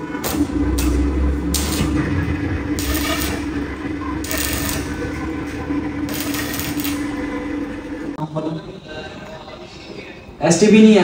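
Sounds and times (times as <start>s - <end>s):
welding arc crackling: 0.0s - 8.2s.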